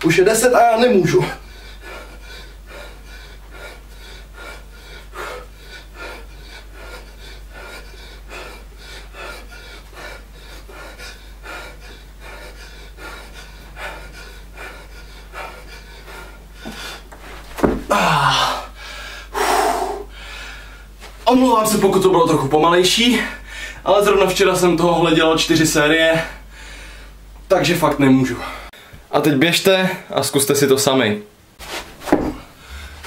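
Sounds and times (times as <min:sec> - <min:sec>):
man panting hard: 0:01.2 - 0:20.9, 0:32.2 - 0:33.0.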